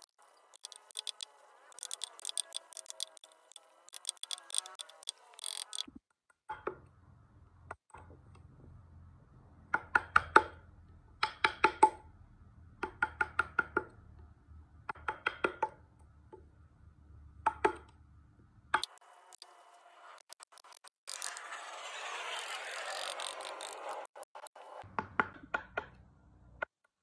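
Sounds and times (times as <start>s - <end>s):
chisel tapping into wood: 9.7s - 10.6s, 11.2s - 12.0s, 12.8s - 13.9s, 14.9s - 15.8s, 25.0s - 26.0s.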